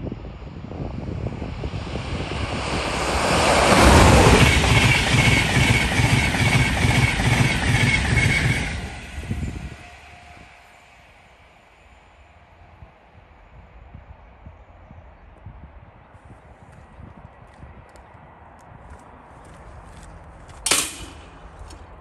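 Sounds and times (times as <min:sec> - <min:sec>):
electric train passing: 0:00.0 - 0:15.4.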